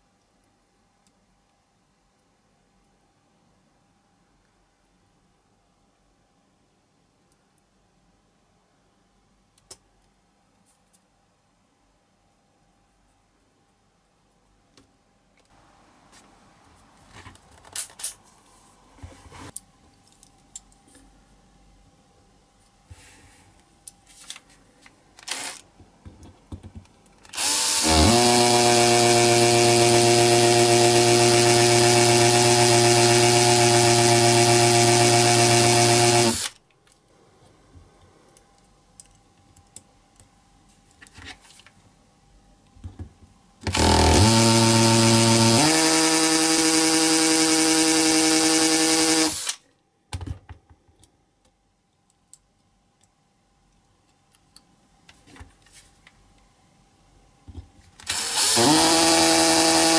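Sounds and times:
electric drill whining: 0:25.3 - 0:25.6, 0:27.3 - 0:36.5, 0:43.6 - 0:49.6, 0:58.0 - 0:59.9.

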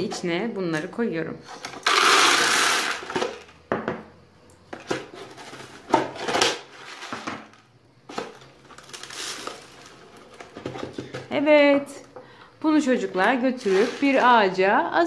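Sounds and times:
corn kernels pouring into plastic: 0:01.8 - 0:03.5, 0:08.7 - 0:10.0
kernels rattling in plastic: 0:01.8 - 0:03.6, 0:05.3 - 0:11.2, 0:13.2 - 0:14.5.

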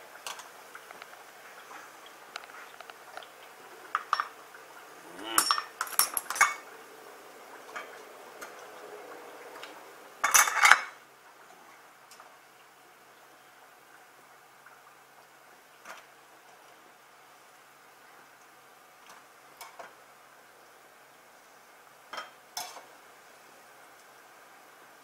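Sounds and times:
churros frying in hot oil: 0:00.0 - 0:25.0
utensil clatter against pan and plate: 0:03.9 - 0:04.4, 0:05.3 - 0:06.6, 0:10.2 - 0:11.0, 0:22.1 - 0:22.9.

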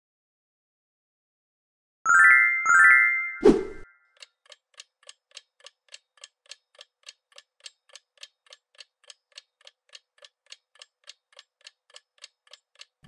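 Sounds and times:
faint clock ticking: 0:04.2 - 0:13.0.

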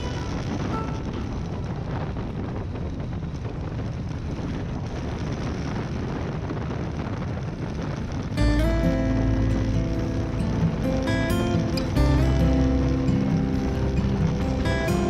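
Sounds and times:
motorcycle engine drone: 0:00.0 - 0:15.0
wind rushing over microphone: 0:00.0 - 0:15.0.

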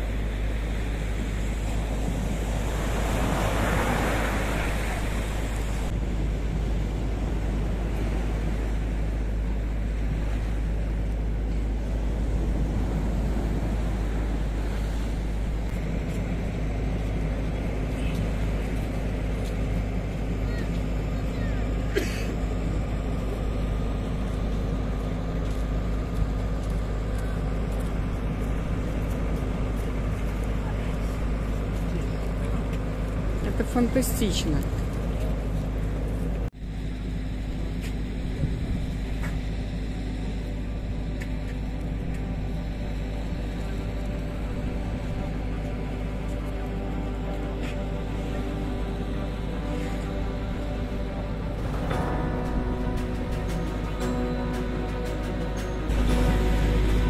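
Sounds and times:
waves crashing on beach: 0:00.0 - 0:18.6
generators humming: 0:00.0 - 0:57.0
low surf rumble: 0:00.0 - 0:57.0.

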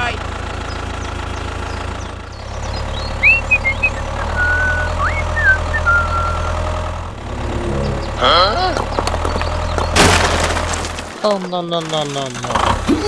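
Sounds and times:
tractor engine running: 0:00.0 - 0:13.0
high whistling chirps: 0:02.9 - 0:06.6.

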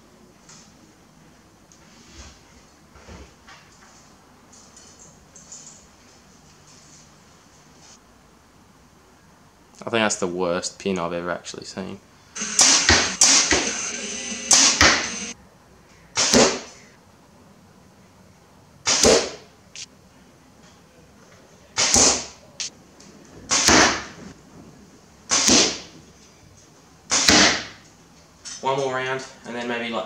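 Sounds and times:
arrow thwack into target: 0:16.2 - 0:16.7, 0:18.9 - 0:19.4, 0:21.8 - 0:22.3, 0:27.1 - 0:27.8.

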